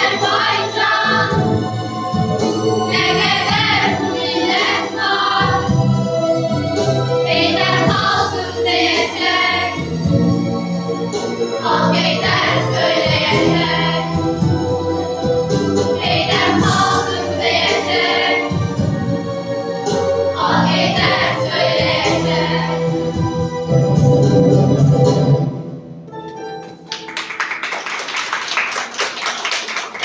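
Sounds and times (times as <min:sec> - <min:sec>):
children singing together: 0:00.0 - 0:01.6, 0:02.8 - 0:05.9, 0:07.2 - 0:09.9, 0:11.6 - 0:14.2, 0:15.8 - 0:18.6, 0:20.4 - 0:22.9.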